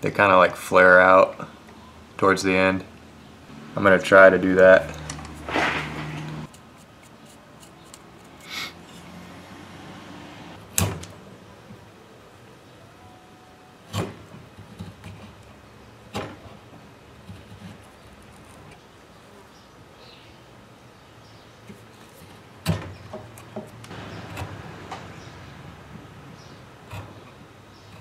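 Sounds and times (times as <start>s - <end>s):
knife carving wood: 4.9s - 9.2s, 17.2s - 18.8s, 23.2s - 24.7s, 26.5s - 28.0s.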